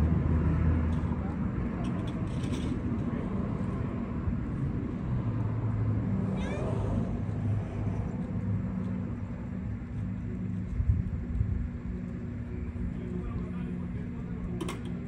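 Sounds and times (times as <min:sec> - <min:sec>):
steady low hum: 0:00.0 - 0:15.0
cat meowing: 0:06.3 - 0:06.8.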